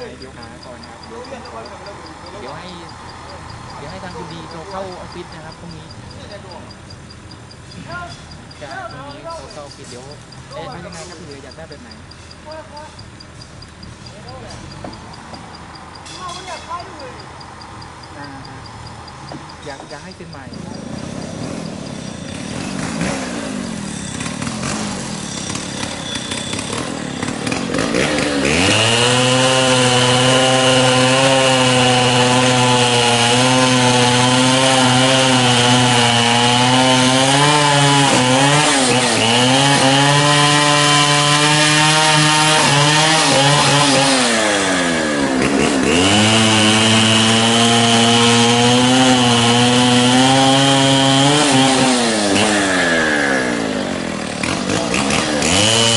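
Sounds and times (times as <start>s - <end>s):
small engine revving high: 13.8s - 55.9s.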